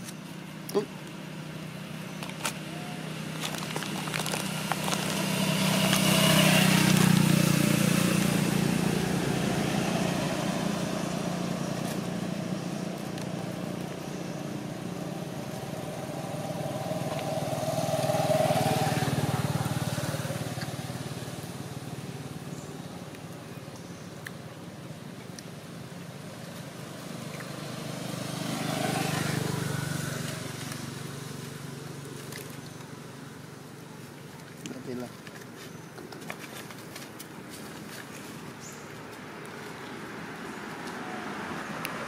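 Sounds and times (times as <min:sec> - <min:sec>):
vehicles passing on road: 0:00.0 - 0:42.0.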